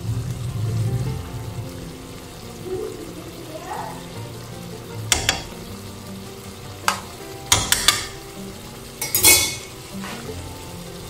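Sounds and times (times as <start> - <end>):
sauce sizzling: 0.0 - 11.0
spoon scraping pan: 9.0 - 10.3.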